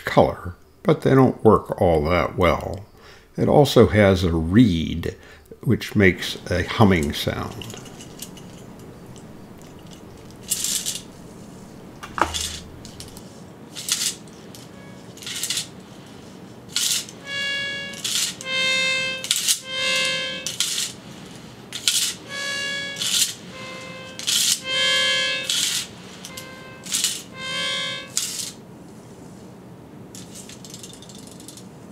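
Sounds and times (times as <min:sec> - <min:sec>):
reed humming steady tone: 0:05.2 - 0:13.4, 0:17.2 - 0:21.2, 0:22.2 - 0:28.3.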